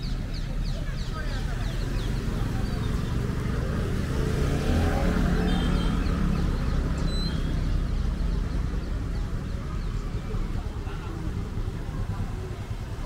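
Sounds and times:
vehicle engine passing by: 0.8 - 13.0.

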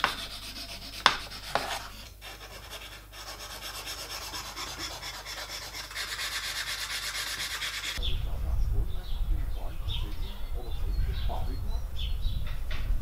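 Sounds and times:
hand sanding wood: 0.0 - 8.0.

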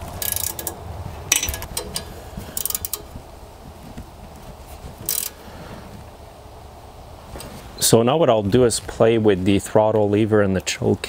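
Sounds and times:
ratchet clicking: 0.0 - 3.1, 5.0 - 5.4.

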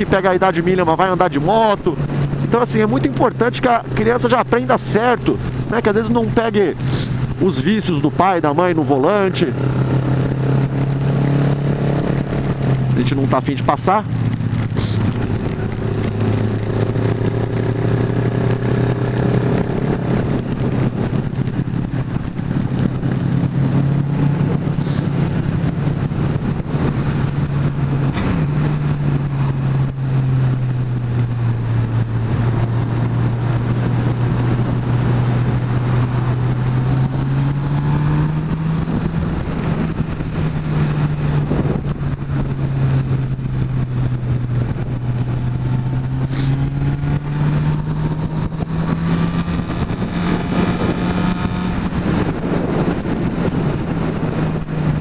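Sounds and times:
motorcycle engine running: 0.0 - 55.0
wind rushing: 14.0 - 55.0.

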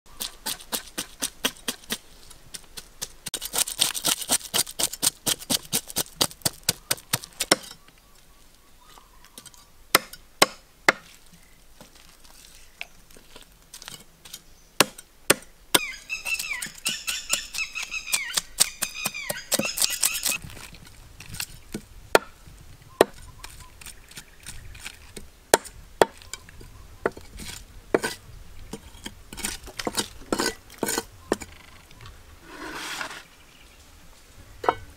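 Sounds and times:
knife scraping fish scales: 3.3 - 6.2, 19.5 - 20.4.

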